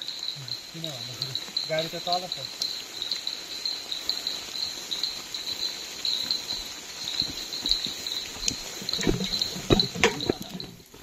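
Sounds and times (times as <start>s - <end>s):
crickets trilling: 0.0s - 11.0s
soft thuds: 7.2s - 11.0s.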